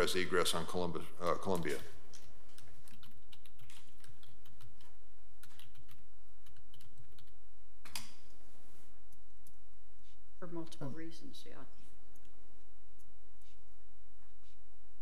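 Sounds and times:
steady low hum: 0:00.0 - 0:15.0
typing on computer keyboard: 0:01.5 - 0:08.1.

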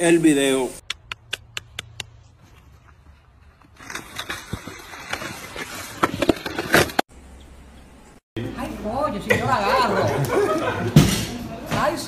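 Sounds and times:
sharp clicks: 0:00.8 - 0:02.2.

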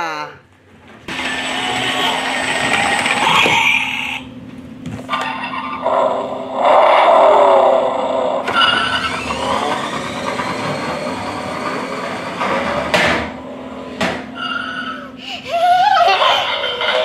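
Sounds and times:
toy car engine revving sound: 0:01.1 - 0:04.3, 0:05.3 - 0:12.9
toy car rising whine: 0:01.1 - 0:04.3, 0:05.1 - 0:15.2.

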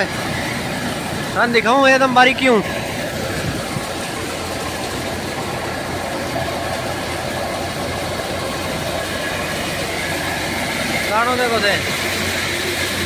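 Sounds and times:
thresher running: 0:00.0 - 0:13.0.

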